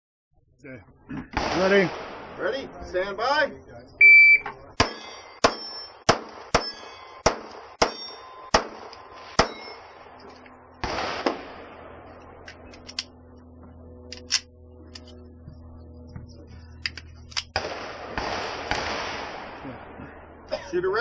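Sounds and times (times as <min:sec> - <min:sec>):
steel target plates ringing: 0:04.8 - 0:07.2, 0:07.8 - 0:10.1
pistol shots: 0:04.8 - 0:09.8, 0:10.8 - 0:11.7, 0:17.5 - 0:19.6.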